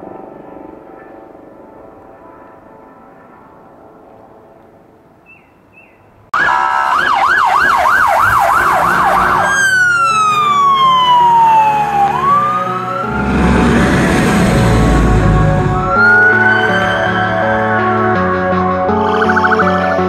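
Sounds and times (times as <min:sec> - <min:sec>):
electronic siren yelping and wailing: 0:06.4 - 0:14.2, 0:14.8 - 0:18.4, 0:19.0 - 0:20.0
background music: 0:07.9 - 0:20.0
low rumble: 0:12.2 - 0:18.1.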